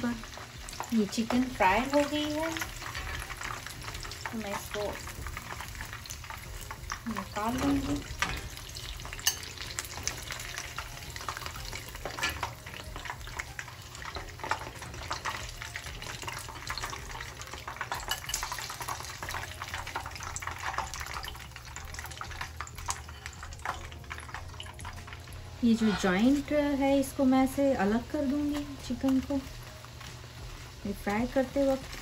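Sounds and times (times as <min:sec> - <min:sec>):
food deep-frying in oil: 0:00.0 - 0:32.0.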